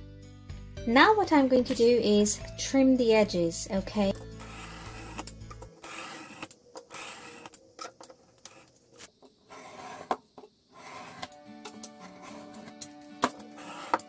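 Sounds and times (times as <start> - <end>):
utility knife cutting cardstock: 4.3 - 7.5, 12.1 - 14.0.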